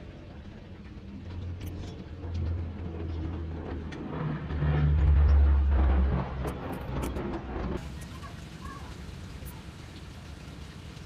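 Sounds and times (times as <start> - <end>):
vehicle engine passing by: 1.8 - 7.8.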